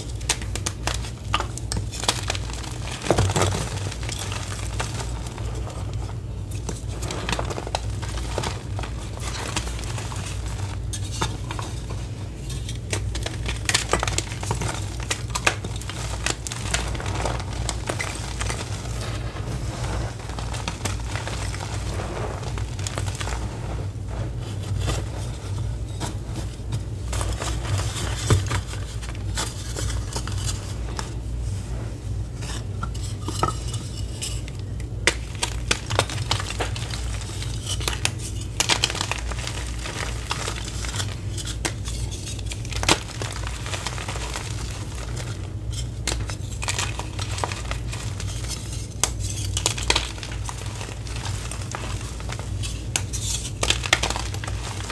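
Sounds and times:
gritty crunching of chalk powder: 0.0 - 32.6, 35.0 - 54.9
steady low hum: 0.0 - 54.9.

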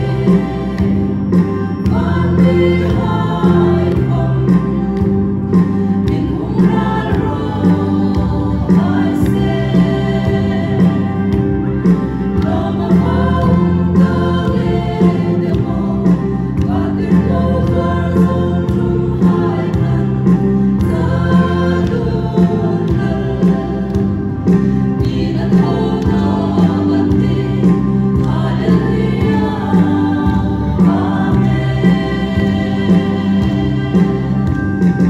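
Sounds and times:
women's choir singing a hymn: 0.0 - 35.0.

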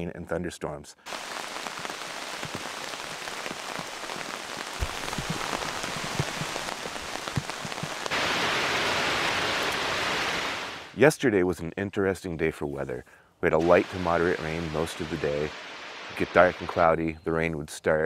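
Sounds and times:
rain on a tent: 1.1 - 11.0, 13.6 - 16.8.

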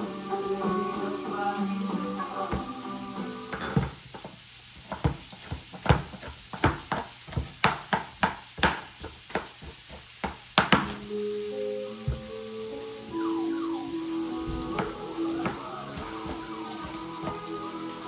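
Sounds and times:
music: 0.0 - 3.9, 10.9 - 18.0
kitchen utensils knocking and clinking: 3.5 - 4.3.

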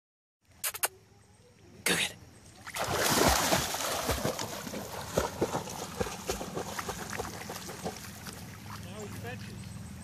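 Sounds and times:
dog splashing into water: 2.6 - 8.3
dog paddling and sloshing: 2.6 - 8.6.

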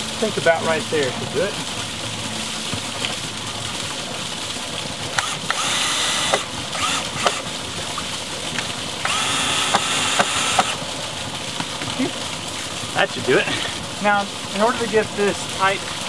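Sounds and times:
cordless drill driving screws: 5.2 - 7.4, 9.0 - 10.8.

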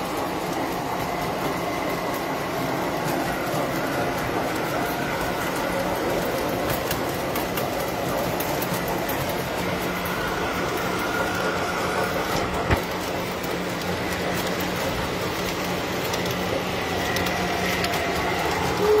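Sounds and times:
constant motor hum: 0.0 - 19.0
toy train wheels rattling on track: 0.0 - 19.0.

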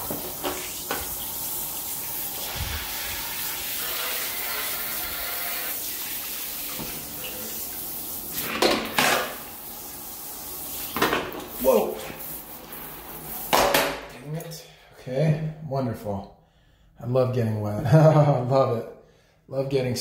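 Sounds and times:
shower water running into drain: 0.0 - 14.0.

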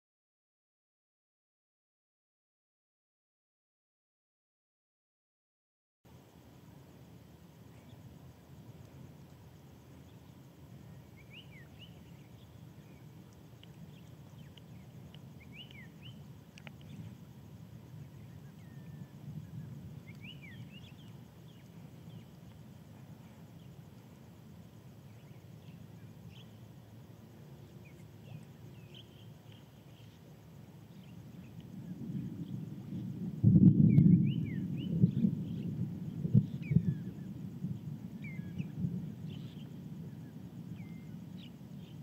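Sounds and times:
low steady rumble: 6.1 - 42.0
whistled bird glides: 9.9 - 33.2, 33.8 - 42.0.

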